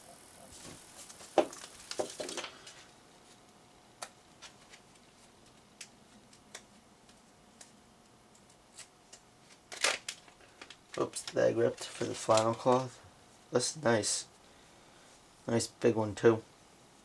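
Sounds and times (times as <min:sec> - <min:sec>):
paper rustling: 0:08.7 - 0:13.0.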